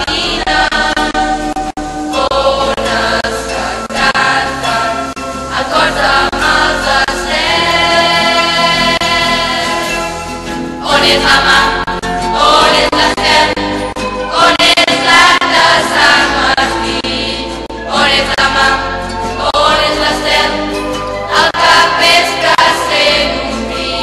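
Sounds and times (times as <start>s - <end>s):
choir singing: 0.0s - 24.0s
musical accompaniment: 0.0s - 24.0s.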